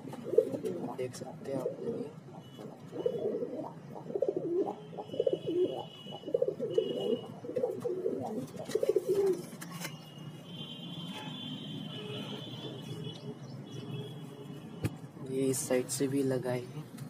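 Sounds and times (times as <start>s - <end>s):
pigeons cooing: 0.0s - 9.9s.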